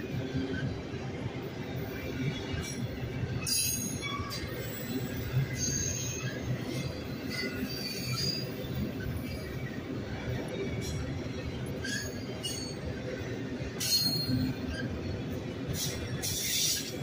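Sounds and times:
train wheels rumbling on rails: 0.0s - 17.0s
high wheel squeals: 3.4s - 9.4s, 13.8s - 15.0s.

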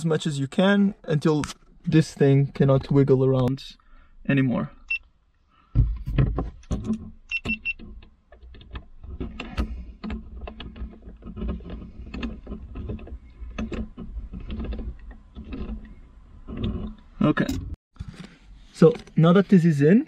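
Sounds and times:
plastic scraping: 5.7s - 19.2s.

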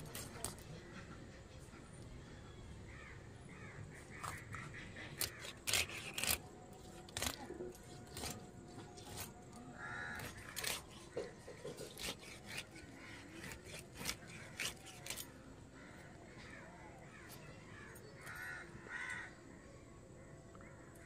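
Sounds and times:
bird calls: 0.0s - 19.4s
crow cawing: 9.7s - 14.6s, 15.7s - 19.4s.

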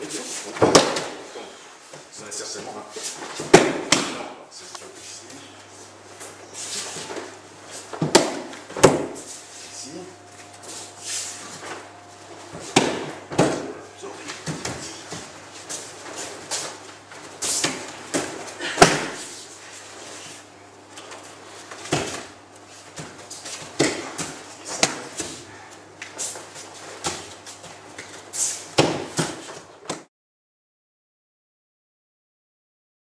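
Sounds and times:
steady low hum: 0.0s - 30.1s
bodies hitting mats: 0.5s - 1.4s, 3.2s - 4.3s, 6.9s - 9.3s, 11.5s - 19.4s, 21.5s - 22.3s, 27.0s - 30.0s.

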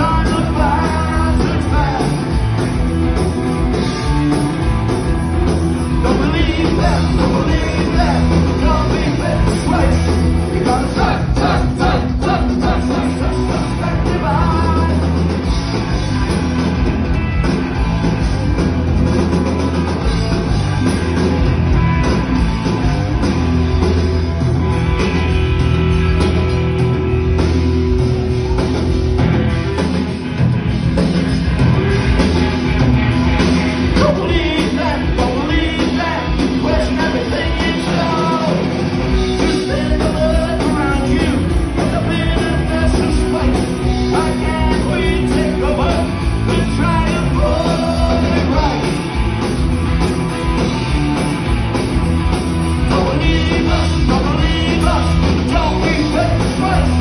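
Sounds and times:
lead vocal singing: 0.0s - 2.4s, 5.9s - 15.3s, 33.9s - 49.0s, 52.8s - 57.0s
punk rock band playing live: 0.0s - 57.0s.

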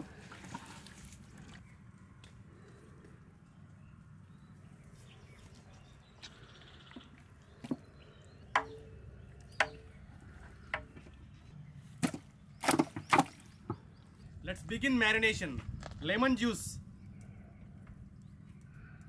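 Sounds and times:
sharp ringing knocks: 8.5s - 8.9s, 9.6s - 10.0s
steady low rumble: 13.8s - 19.0s.

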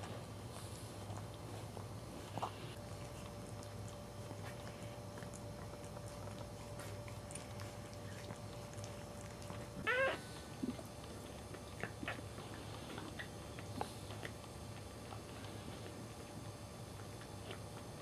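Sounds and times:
faint puppy squeaks: 9.7s - 10.4s
puppy squealing: 9.8s - 10.3s.

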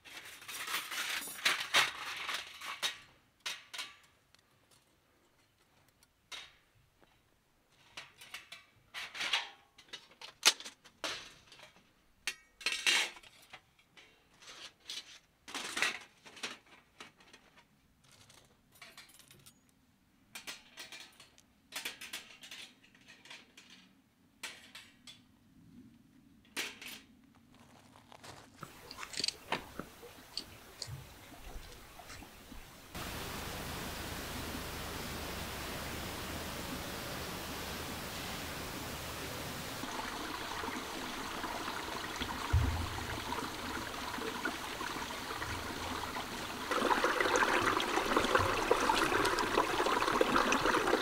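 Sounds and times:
small objects clinking and rustling: 0.0s - 2.9s, 27.5s - 31.0s.

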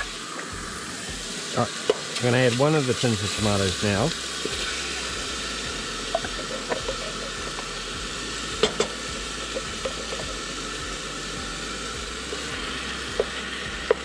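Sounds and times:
onion and mushrooms sizzling in pot: 0.0s - 14.0s.

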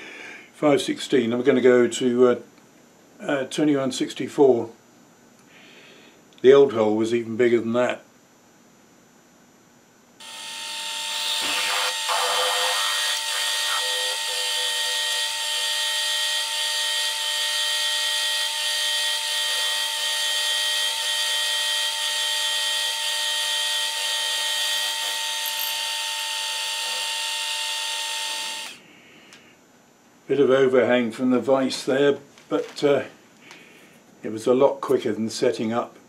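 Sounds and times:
drill press whining: 10.2s - 28.8s.

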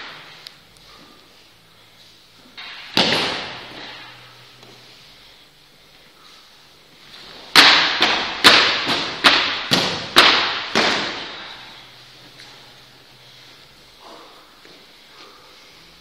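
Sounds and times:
plastic swords clacking: 7.5s - 11.2s.

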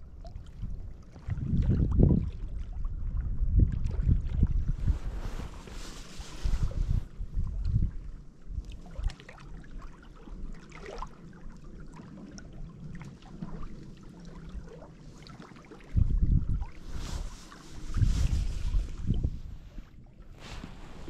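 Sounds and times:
wind buffeting microphone: 0.1s - 9.1s, 15.8s - 21.0s
water lapping against rocks: 0.4s - 21.0s.

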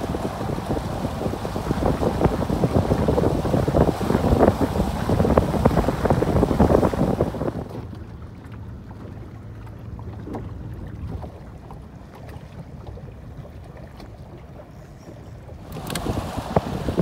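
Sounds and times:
wind buffeting microphone: 0.0s - 7.9s, 14.4s - 17.0s
water: 0.0s - 17.0s.

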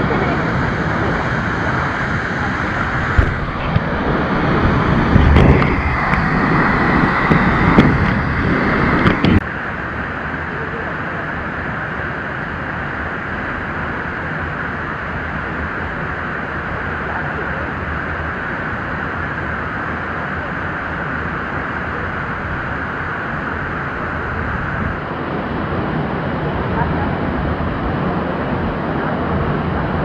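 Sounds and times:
waterfall rushing: 0.0s - 10.2s.

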